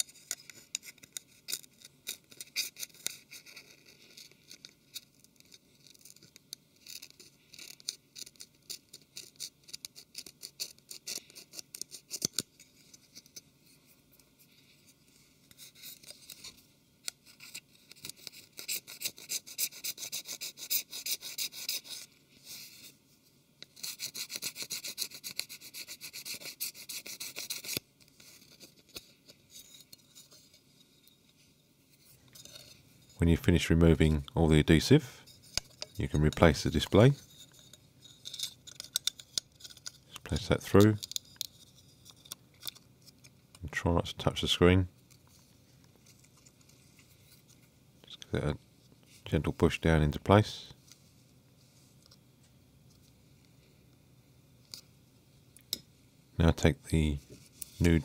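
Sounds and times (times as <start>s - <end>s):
metal pick scraping metal: 32.3s - 33.2s, 35.2s - 42.8s.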